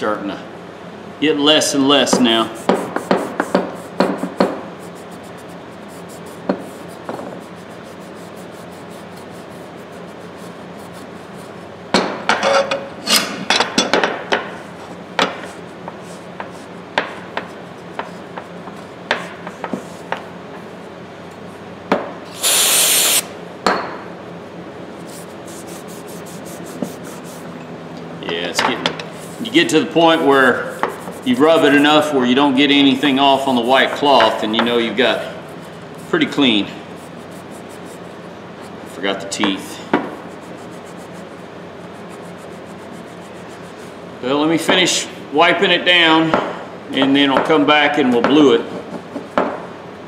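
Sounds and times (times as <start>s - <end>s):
cloth rubbing on steel: 2.5s - 11.7s, 25.0s - 27.5s, 29.1s - 32.2s, 33.0s - 39.1s, 40.2s - 44.1s
aerosol can spraying: 22.3s - 23.3s, 25.2s - 27.5s, 37.1s - 38.1s, 40.2s - 41.3s, 41.9s - 43.9s.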